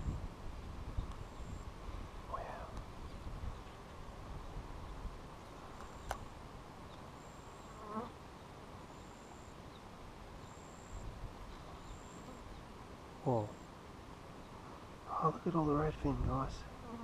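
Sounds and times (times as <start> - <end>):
wind buffeting microphone: 0.0 - 5.4, 15.7 - 16.7
single click: 5.8 - 6.2.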